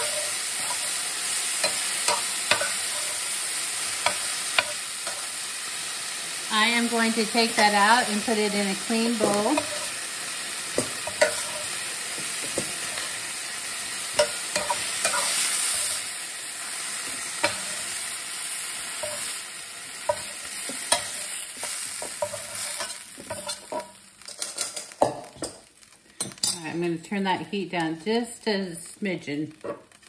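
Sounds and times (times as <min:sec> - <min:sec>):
metal spoon scraping a pan: 0:00.0 - 0:05.5, 0:07.5 - 0:13.3, 0:14.1 - 0:16.1, 0:16.8 - 0:18.1, 0:18.9 - 0:19.4, 0:20.0 - 0:25.6
chicken sizzling in hot oil: 0:00.0 - 0:30.0.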